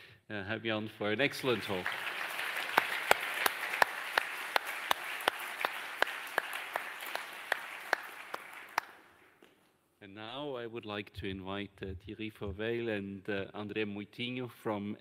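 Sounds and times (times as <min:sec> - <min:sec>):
audience applauding: 0:01.2 - 0:09.2.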